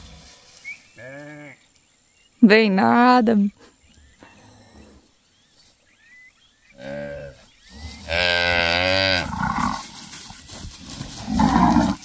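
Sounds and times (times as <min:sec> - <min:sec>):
cattle mooing: 0:06.8 - 0:09.9, 0:11.2 - 0:12.0.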